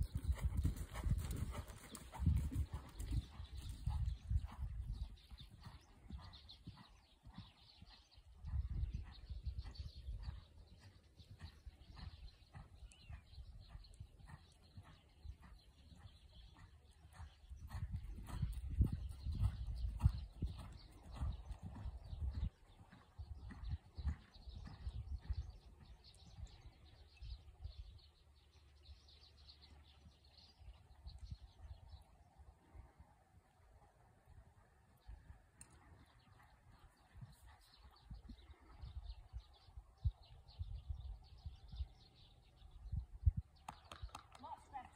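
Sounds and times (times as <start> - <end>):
horse hoofbeats on sand: 0.0 - 26.6
wind rumble on microphone: 0.0 - 28.1, 30.6 - 32.9, 34.3 - 44.8
faint birdsong chirps: 0.0 - 44.9.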